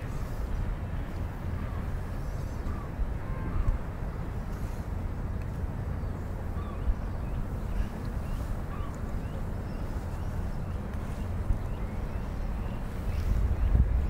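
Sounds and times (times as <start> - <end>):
low outdoor rumble: 0.0 - 14.0
faint bird chirps: 6.0 - 13.8.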